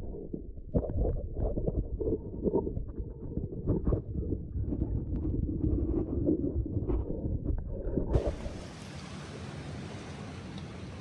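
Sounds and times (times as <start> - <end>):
stick knocking underwater: 0.0 - 8.4
muffled underwater rumble: 0.0 - 8.7
wind: 8.1 - 11.0
shallow water hiss: 8.2 - 11.0.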